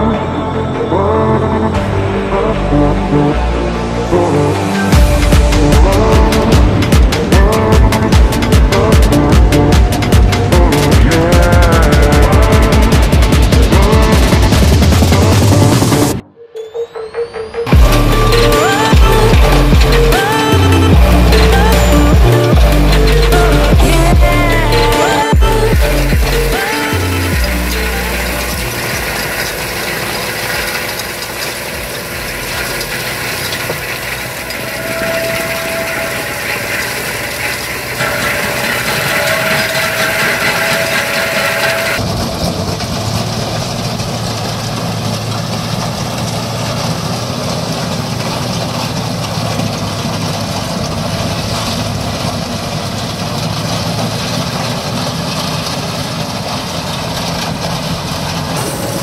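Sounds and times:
tractor engine under load: 0.0s - 16.2s, 17.6s - 59.0s
stone crusher grinding soil: 17.8s - 59.0s.

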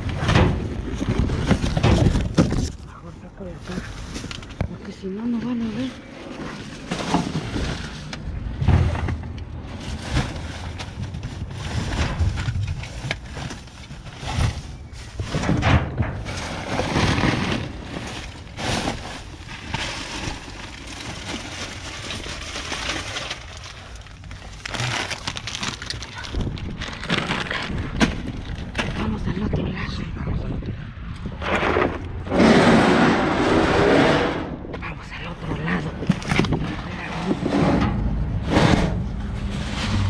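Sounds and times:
plastic bags rustling: 0.0s - 29.1s, 35.9s - 40.0s.

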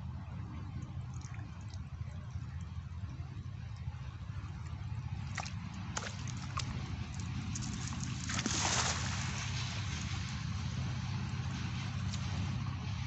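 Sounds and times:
steady low hum: 0.0s - 13.0s
small splashes and drips: 0.6s - 10.5s, 11.1s - 12.6s
net splashing into water: 5.2s - 10.3s.

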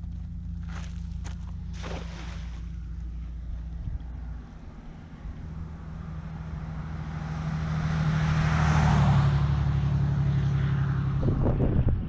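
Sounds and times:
passing vehicle engine hum: 0.0s - 12.0s.

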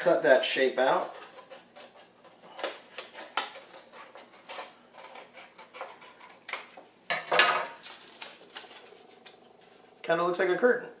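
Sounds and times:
scissors cutting paper: 1.1s - 6.7s
paper rustling: 7.7s - 9.9s.

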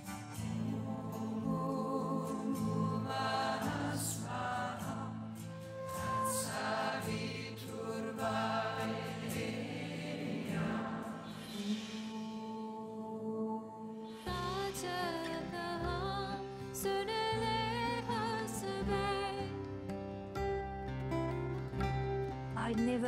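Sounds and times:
voices chanting together: 0.4s - 14.2s.

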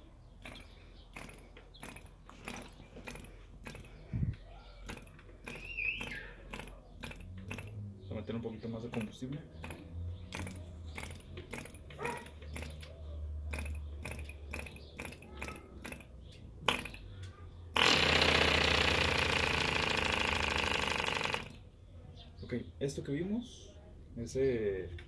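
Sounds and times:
irregular clicks and knocks: 0.4s - 7.9s, 8.7s - 21.6s
model engine running loudly: 17.8s - 21.6s.

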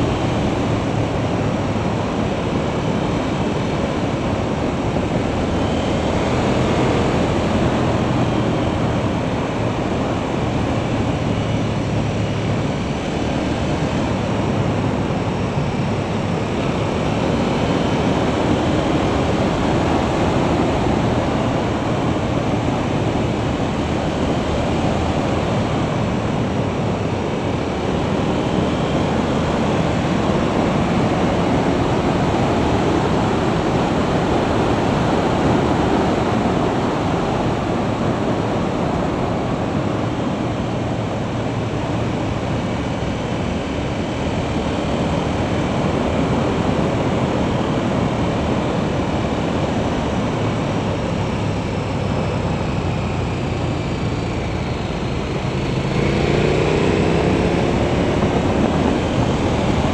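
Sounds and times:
wind rushing over microphone: 0.0s - 59.9s
low motorcycle engine note: 52.2s - 59.9s.

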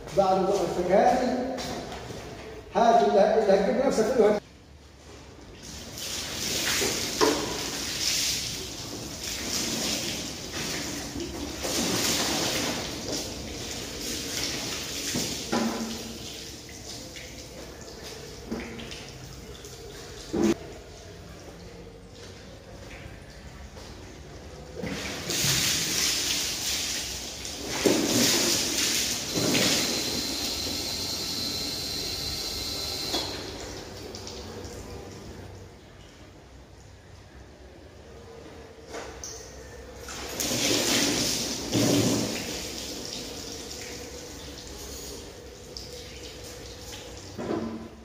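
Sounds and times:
water splashing onto scooter and concrete: 5.6s - 36.0s, 39.9s - 47.4s.

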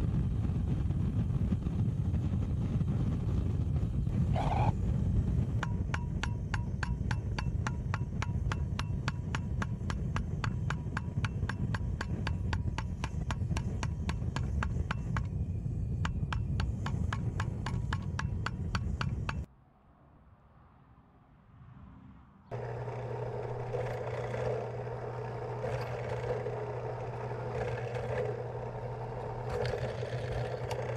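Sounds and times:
gas torch running: 22.5s - 30.9s
rapid regular clicks: 22.5s - 30.9s.

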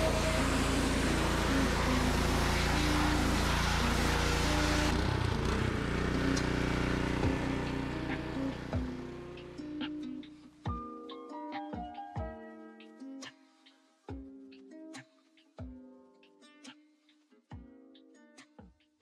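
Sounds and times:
high-pressure spray hissing on metal: 0.0s - 4.9s
pressure washer engine running: 0.0s - 9.6s.

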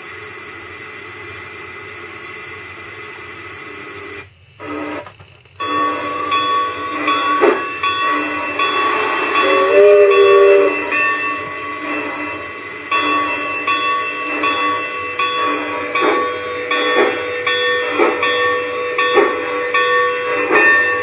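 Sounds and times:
model steam locomotive sounds: 0.0s - 21.0s
chime whistle: 5.6s - 15.8s.

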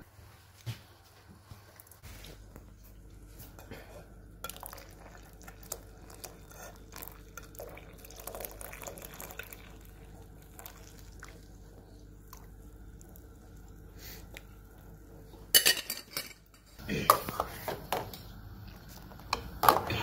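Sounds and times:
tea pouring through metal strainer: 4.4s - 11.6s.

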